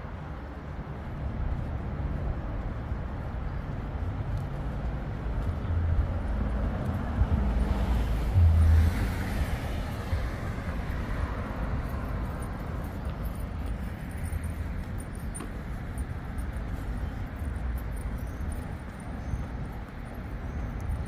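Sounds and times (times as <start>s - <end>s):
street traffic rumble: 0.0s - 21.0s
vehicle passing close by: 5.7s - 12.8s.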